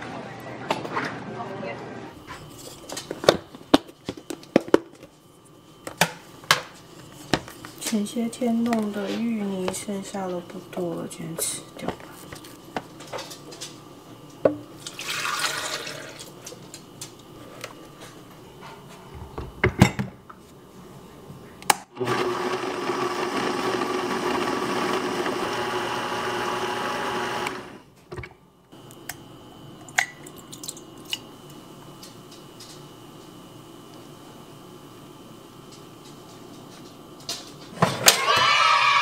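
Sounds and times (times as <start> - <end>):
blender running: 15.0 - 16.2, 21.9 - 27.9, 38.0 - 39.0.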